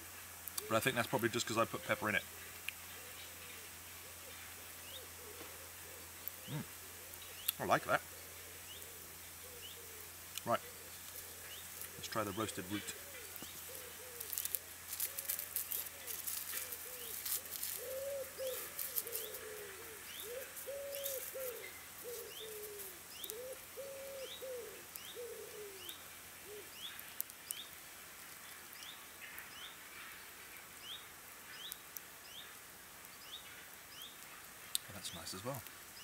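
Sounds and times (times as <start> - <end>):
crackling of root being peeled: 0.3 - 0.8, 10.1 - 23.6
pigeon cooing: 3.0 - 26.8
small bird chirping: 6.0 - 7.8, 8.6 - 27.8.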